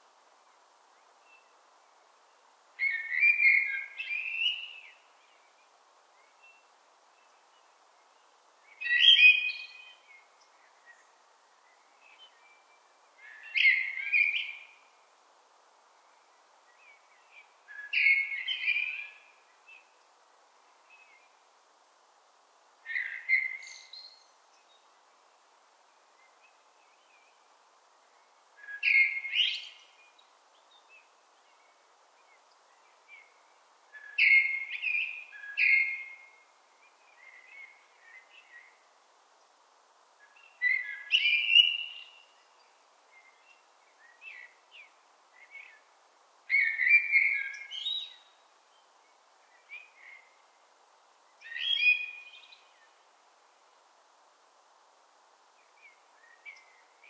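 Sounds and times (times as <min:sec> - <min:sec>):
faint background hiss: 0:00.0 - 0:57.0
blackbird singing: 0:02.8 - 0:05.0, 0:08.8 - 0:10.0, 0:13.2 - 0:14.8, 0:17.7 - 0:19.2, 0:28.6 - 0:29.9, 0:34.0 - 0:36.3, 0:40.3 - 0:42.5, 0:46.5 - 0:48.3, 0:51.4 - 0:52.7.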